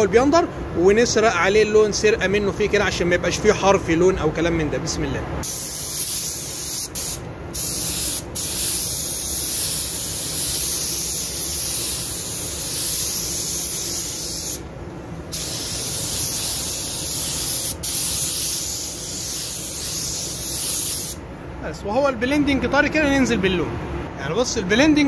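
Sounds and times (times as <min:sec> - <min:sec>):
paint spray gun hissing: 0:05.4 - 0:14.6, 0:15.3 - 0:21.2.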